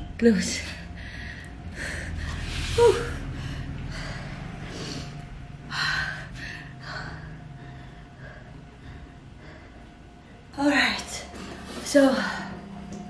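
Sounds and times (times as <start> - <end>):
woman breathing hard and gasping: 0.8 - 10.5.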